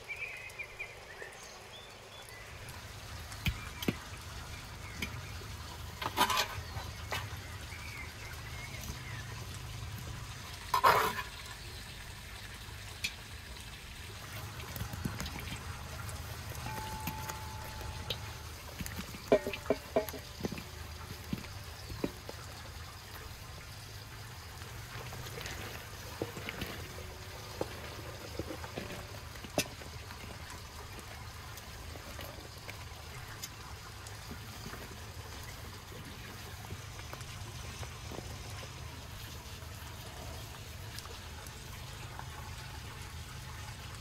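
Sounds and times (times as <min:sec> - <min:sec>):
running water trickling: 0:00.0 - 0:44.0
vegetables tapping into metal pot: 0:16.5 - 0:20.7.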